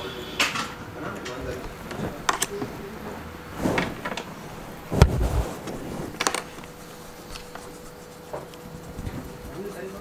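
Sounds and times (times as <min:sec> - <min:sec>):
handling knocks and clicks: 0:01.3 - 0:02.9, 0:03.8 - 0:07.7.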